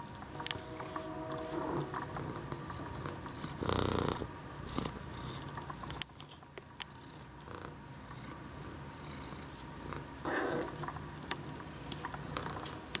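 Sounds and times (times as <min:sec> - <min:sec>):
cat purring: 0:02.1 - 0:05.9, 0:06.8 - 0:10.9.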